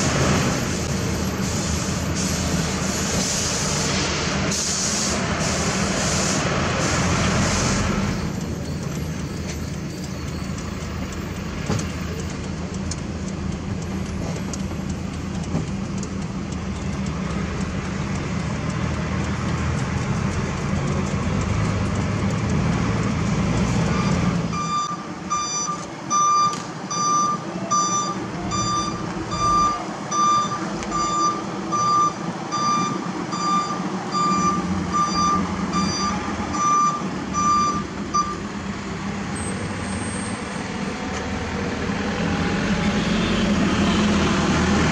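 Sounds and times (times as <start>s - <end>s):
diesel truck engine running: 0.0s - 44.9s
reversing alarm beeps: 23.9s - 38.4s.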